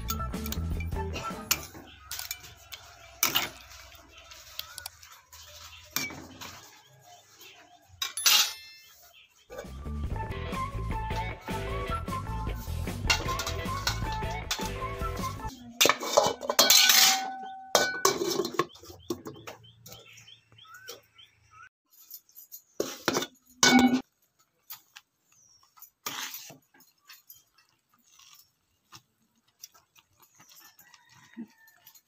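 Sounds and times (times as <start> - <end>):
metal ladle scraping a pan: 12.6 - 18.8, 25.9 - 28.5
metal lid clanking on a pan: 15.8 - 18.6.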